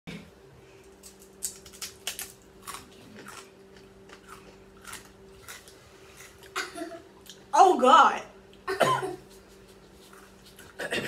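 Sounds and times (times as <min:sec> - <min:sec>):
tortilla chip crunching: 0:00.9 - 0:06.6.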